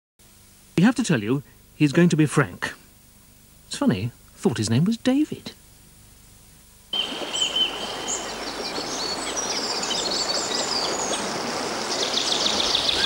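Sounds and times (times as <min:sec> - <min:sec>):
birds chirping and trilling: 0:07.0 - 0:13.0
river flowing over stones: 0:07.0 - 0:13.0.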